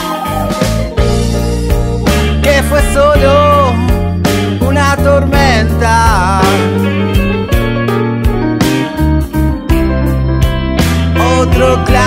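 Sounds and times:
sharp drum hits: 0:00.0 - 0:04.5
electric guitars: 0:00.0 - 0:12.0
sustained bass notes: 0:00.0 - 0:12.0.

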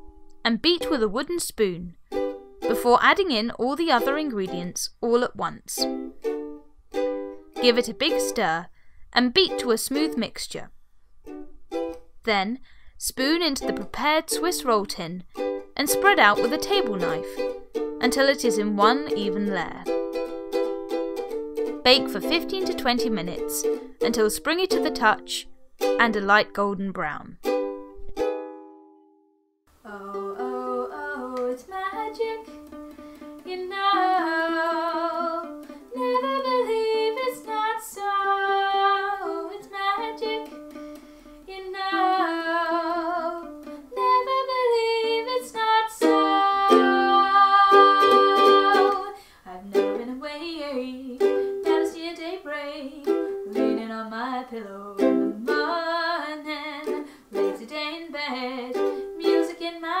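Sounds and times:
ukulele: 0:00.0 - 0:08.7, 0:09.4 - 0:10.6, 0:11.2 - 0:12.4, 0:13.0 - 0:29.2, 0:29.8 - 1:00.0
woman singing: 0:02.7 - 0:04.8, 0:13.0 - 0:15.2, 0:15.8 - 0:17.4, 0:18.0 - 0:19.9, 0:21.9 - 0:27.2, 0:29.8 - 0:32.5, 0:33.4 - 0:40.6, 0:41.5 - 1:00.0.

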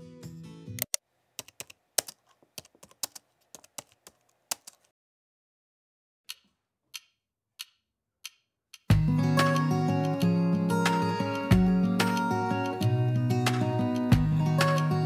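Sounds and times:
computer keyboard typing: 0:00.8 - 0:04.9
acoustic guitar music: 0:08.9 - 0:15.0.

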